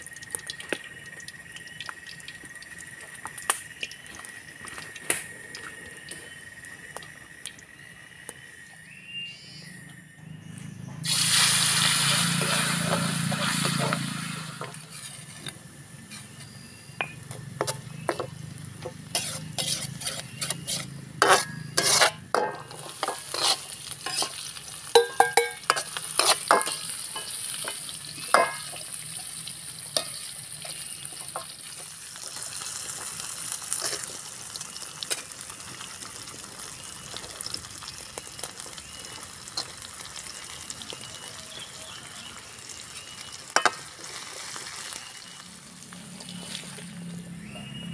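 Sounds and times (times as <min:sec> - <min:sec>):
food frying sizzle: 0:00.0 - 0:08.4, 0:11.0 - 0:47.5
metal spatula scraping a wok: 0:12.0 - 0:16.6, 0:17.6 - 0:28.7.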